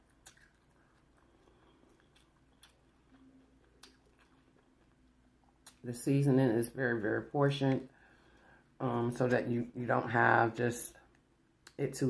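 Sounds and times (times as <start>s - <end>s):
person chewing: 0.0s - 5.8s.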